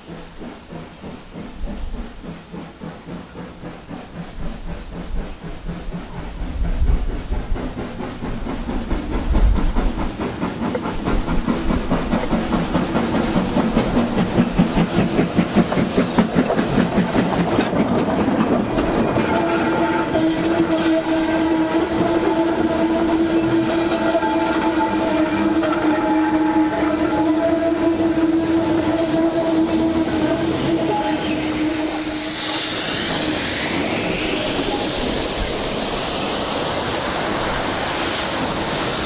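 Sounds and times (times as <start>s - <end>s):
steam hiss: 0.0s - 39.0s
steam locomotive exhaust beats: 0.0s - 39.0s
wagons clanking over rail joints: 7.8s - 32.4s
steam whistle: 19.2s - 35.4s.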